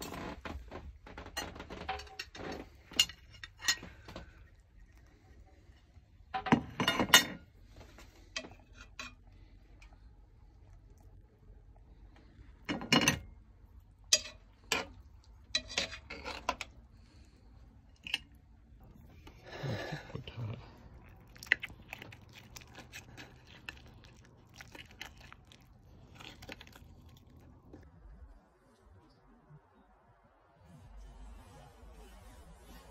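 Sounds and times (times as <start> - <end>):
utensils clinking on cast iron pot: 2.0 - 4.2, 14.1 - 16.7.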